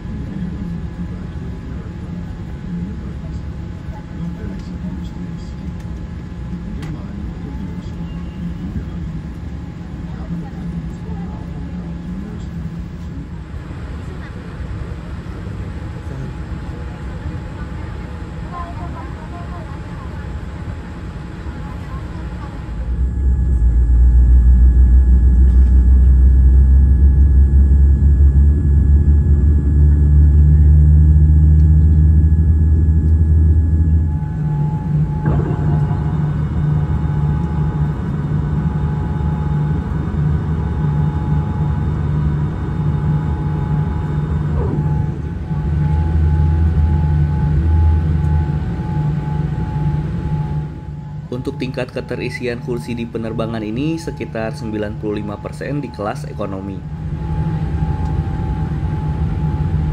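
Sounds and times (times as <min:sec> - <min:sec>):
aircraft cabin rumble: 0:00.0 - 0:59.9
flap drive whine: 0:16.0 - 0:59.9.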